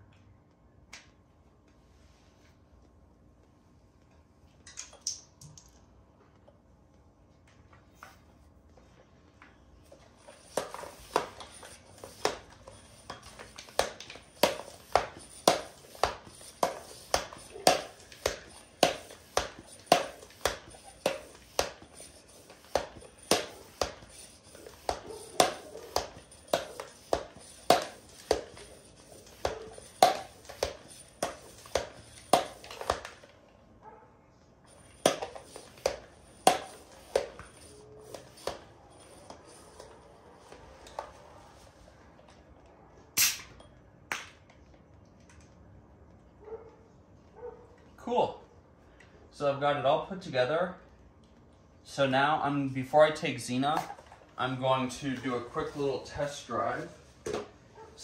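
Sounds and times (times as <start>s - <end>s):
bicycle pump strokes: 9.8s - 33.4s, 34.7s - 41.8s, 53.0s - 58.0s.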